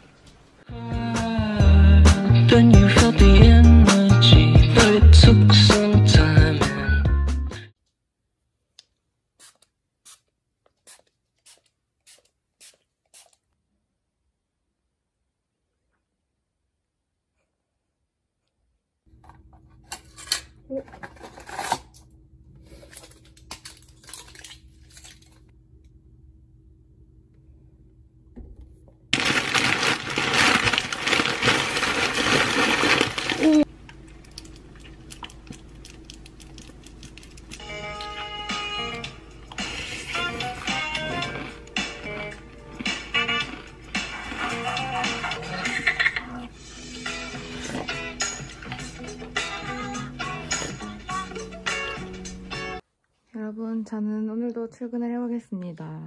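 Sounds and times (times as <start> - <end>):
background music: 0.7 - 7.7, 37.6 - 52.8
cereal rattling from foil bag: 29.2 - 33.7.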